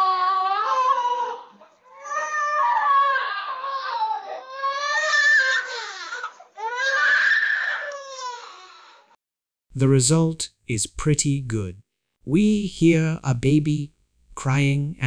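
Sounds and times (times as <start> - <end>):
baby crying: 0.0 - 9.2.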